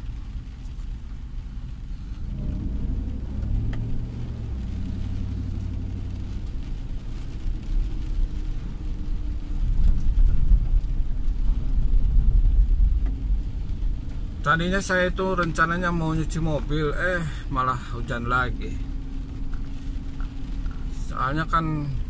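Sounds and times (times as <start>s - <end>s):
engine and road rumble: 0.0s - 22.0s.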